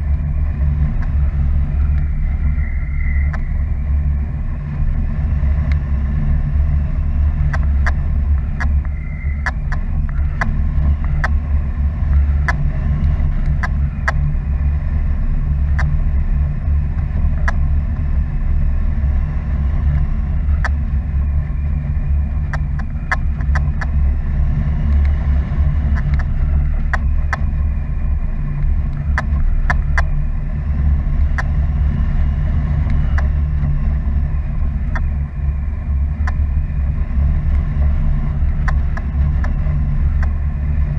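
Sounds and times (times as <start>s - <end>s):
wind rumble on microphone: 0.0s - 40.9s
sharp clicks: 1.9s - 3.6s, 7.5s - 11.4s, 12.4s - 14.3s, 25.9s - 27.5s, 38.6s - 40.4s.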